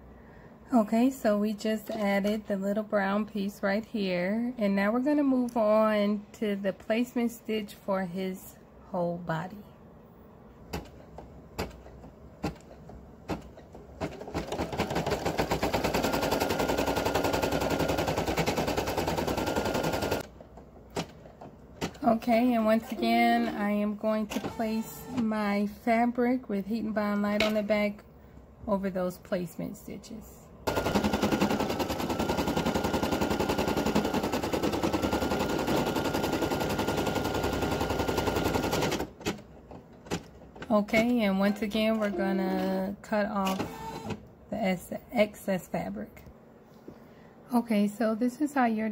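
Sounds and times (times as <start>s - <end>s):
embroidery machine stitching: 13.3s - 20.3s, 24.3s - 25.2s, 30.7s - 39.4s, 43.4s - 44.2s.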